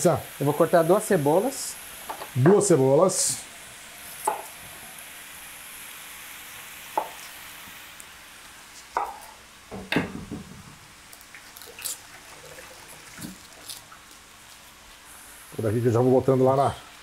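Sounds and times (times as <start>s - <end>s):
beef sizzling in a wok: 0.0s - 17.0s
knife knocking on cutting board: 7.0s - 7.2s
onion skin crackling: 11.0s - 15.0s.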